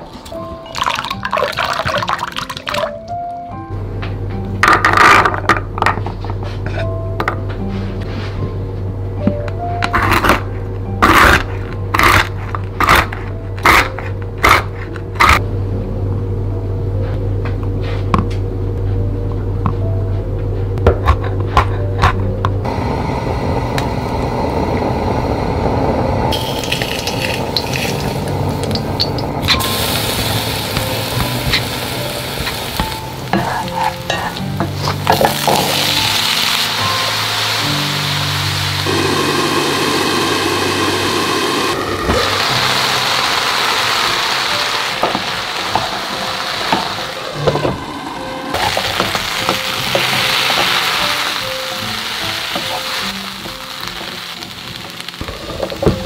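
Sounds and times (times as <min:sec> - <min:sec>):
gas burner rushing: 0:22.6 - 0:56.0
garlic sizzling in oil: 0:22.7 - 0:56.0
spatula scraping a pan: 0:33.4 - 0:35.7.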